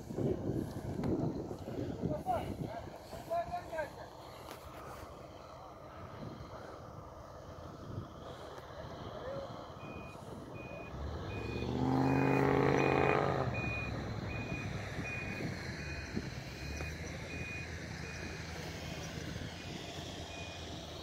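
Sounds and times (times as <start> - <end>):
off-road vehicle engine revving: 7.6 - 21.0.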